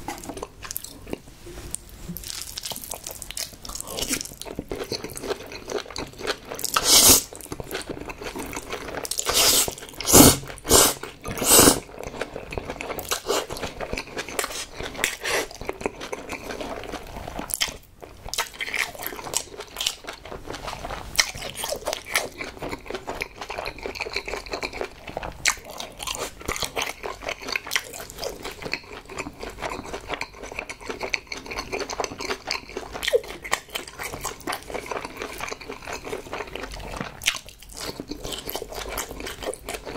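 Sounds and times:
wet chewing: 2.2 - 39.9
noodle slurping: 6.8 - 7.3, 9.2 - 11.9, 13.1 - 13.6.

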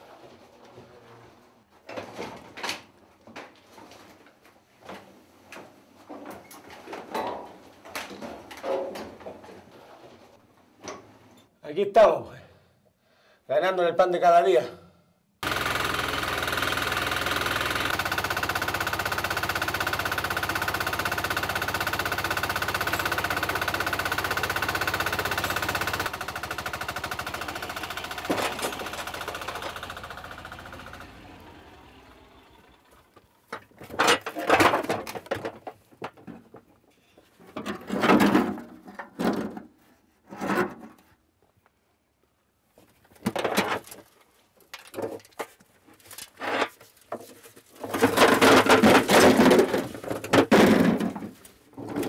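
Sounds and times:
mine machinery rattling: 15.4 - 35.6, 47.8 - 52.0.

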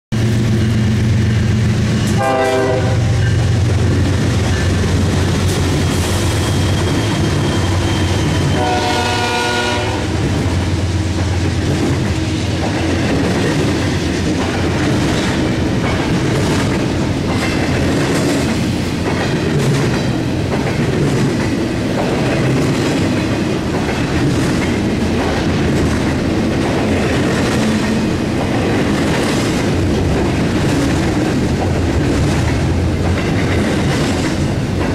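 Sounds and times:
diesel locomotive engine: 0.1 - 34.9
train wheels clicking over rail joints: 0.2 - 34.9
train horn: 2.1 - 3.4, 8.5 - 10.2.

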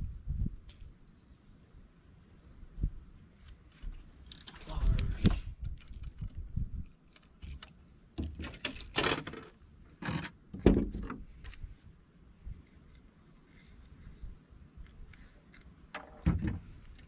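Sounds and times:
wind rumbling on microphone: 0.0 - 7.6, 13.6 - 17.0
fishing gear clicks and rattles: 3.8 - 10.3.

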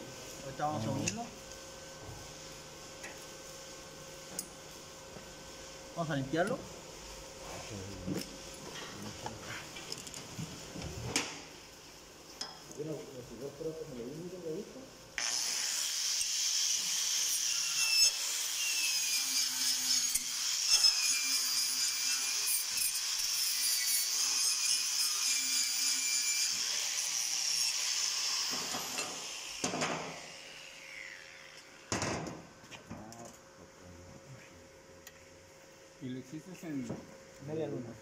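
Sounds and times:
angle grinder on steel: 15.2 - 31.9.

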